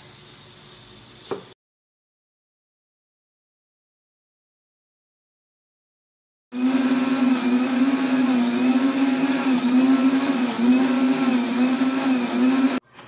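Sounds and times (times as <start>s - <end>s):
blender motor running: 6.6s - 12.8s.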